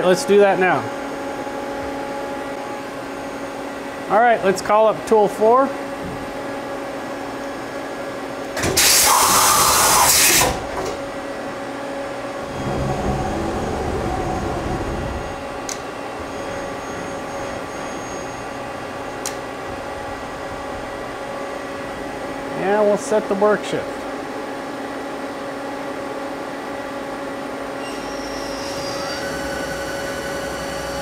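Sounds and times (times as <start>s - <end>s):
loud hiss: 8.6s - 10.6s
low rumble: 12.3s - 15.7s.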